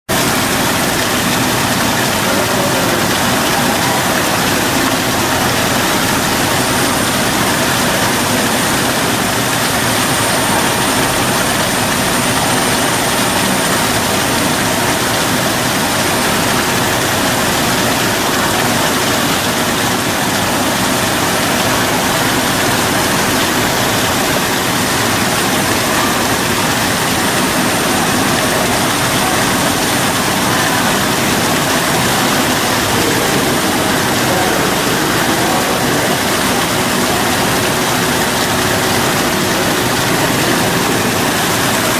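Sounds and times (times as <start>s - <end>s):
indoor waterfall splashing: 0.1s - 41.9s.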